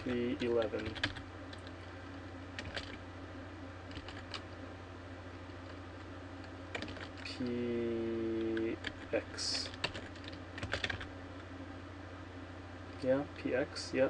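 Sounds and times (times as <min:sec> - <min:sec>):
steady low hum: 0:00.0 - 0:14.0
keyboard keystrokes: 0:02.6 - 0:03.0, 0:03.9 - 0:04.4, 0:06.7 - 0:07.2, 0:09.7 - 0:11.1.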